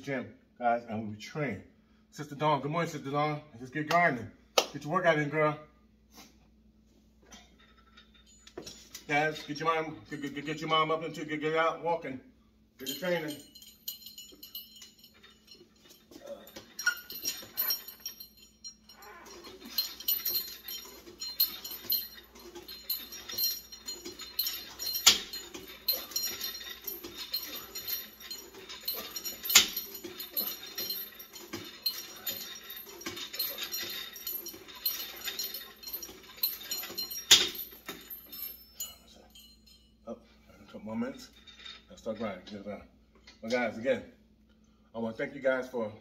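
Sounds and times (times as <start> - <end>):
cable machine jangling and clicking: 7.3 - 11.2, 12.8 - 39.9, 41.0 - 43.8.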